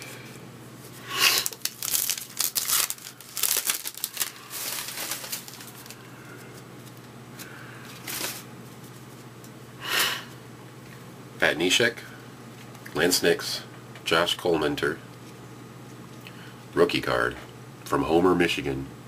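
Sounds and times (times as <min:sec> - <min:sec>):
wrapper rustle: 0:00.8 - 0:07.1, 0:07.9 - 0:09.2
foil wrapper crinkling and tearing: 0:01.2 - 0:08.5.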